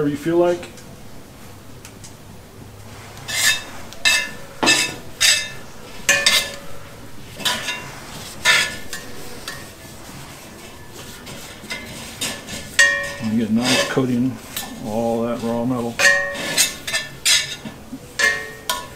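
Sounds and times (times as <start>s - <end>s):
rag rubbing a pan: 2.9s - 18.9s
metal tongs clinking on skillet: 3.3s - 6.7s, 7.4s - 9.7s, 11.6s - 14.8s, 16.0s - 18.9s.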